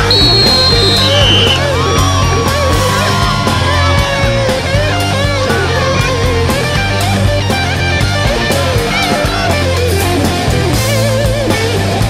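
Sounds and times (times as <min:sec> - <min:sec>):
rock music with guitar and drums: 0:00.0 - 0:12.0.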